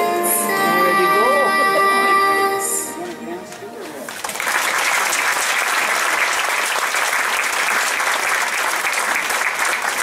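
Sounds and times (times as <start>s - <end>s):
audience applauding: 3.0s - 10.0s.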